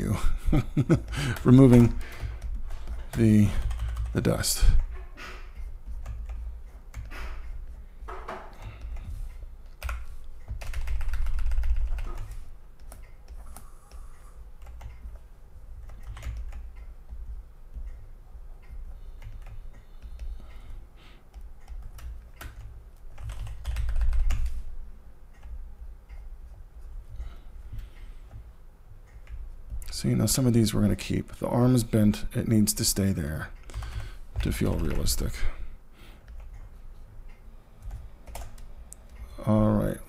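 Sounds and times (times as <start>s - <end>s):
computer keyboard clicking: 0.8s - 4.9s, 5.8s - 7.6s, 8.4s - 15.2s, 15.8s - 20.7s, 21.3s - 24.6s, 33.6s - 35.3s, 37.8s - 39.2s.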